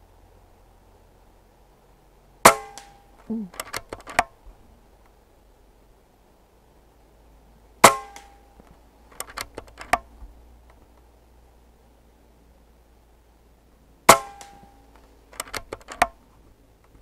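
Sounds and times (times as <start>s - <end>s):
rifle action clicking: 3.6s - 4.3s, 9.1s - 10.0s, 15.3s - 16.2s.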